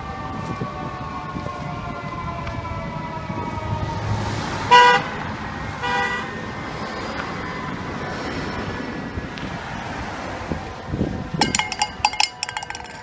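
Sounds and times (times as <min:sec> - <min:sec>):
fire truck siren wailing: 0:00.0 - 0:09.2
city traffic: 0:00.0 - 0:13.0
short horn blasts: 0:04.7 - 0:05.0.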